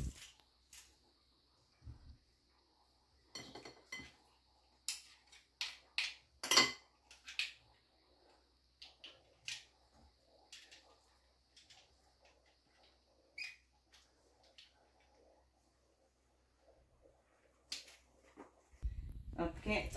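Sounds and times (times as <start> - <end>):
utensils and dishes clinking: 3.3 - 4.2, 4.9 - 7.6.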